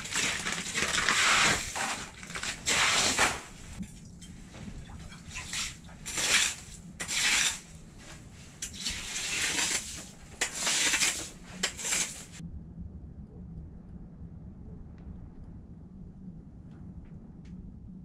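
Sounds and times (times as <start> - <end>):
ice skimmer scraping ice: 0.0 - 3.8, 5.1 - 12.4.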